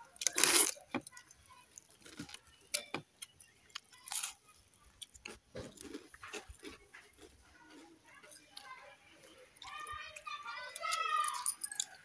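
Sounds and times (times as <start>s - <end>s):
chewing rice: 0.0s - 11.0s
crunching bites of fried food: 3.8s - 7.8s.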